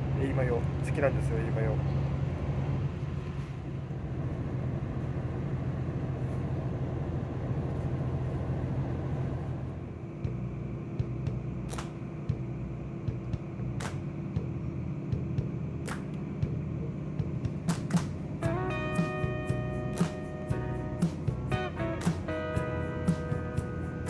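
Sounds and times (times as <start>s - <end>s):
diesel train engines idling: 0.0s - 24.0s.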